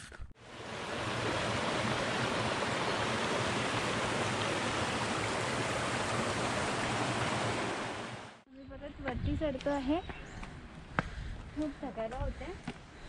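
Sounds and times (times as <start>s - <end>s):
creek water rushing over stones: 0.4s - 8.4s.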